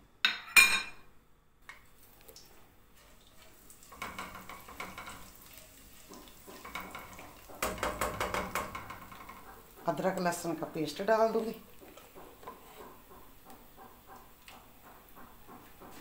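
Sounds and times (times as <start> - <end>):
spatula stirring: 1.7 - 16.0
seeds sizzling in hot oil: 1.9 - 13.8.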